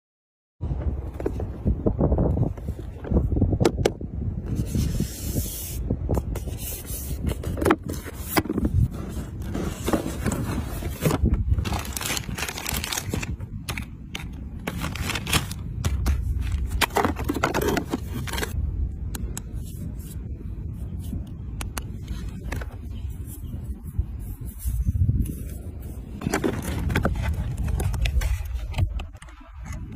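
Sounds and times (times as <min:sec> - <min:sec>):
cardboard box scraping and rustling: 0:04.5 - 0:18.6, 0:26.0 - 0:28.8.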